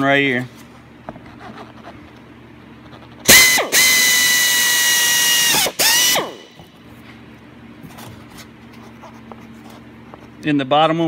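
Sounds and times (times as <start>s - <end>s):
power drill boring through plastic: 3.3s - 6.4s.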